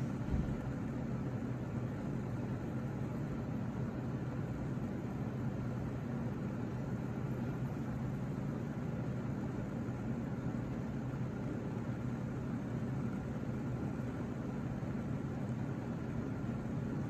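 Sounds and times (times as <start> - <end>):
heater humming and hissing: 0.0 - 17.0.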